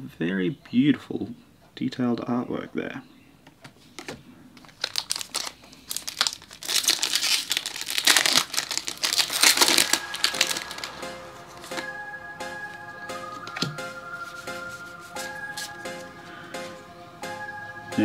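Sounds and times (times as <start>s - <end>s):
foil wrapper tearing and crinkling: 4.6s - 11.0s.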